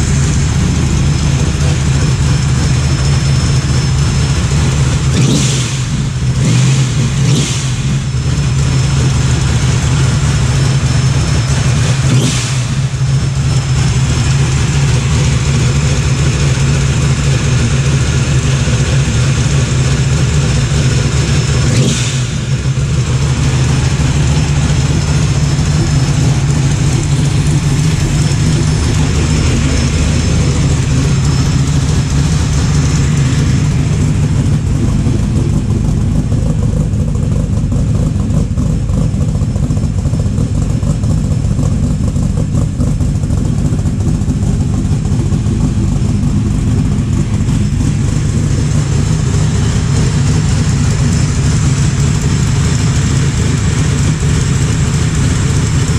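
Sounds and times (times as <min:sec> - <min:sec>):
car engine idling: 0:00.0 - 0:55.9.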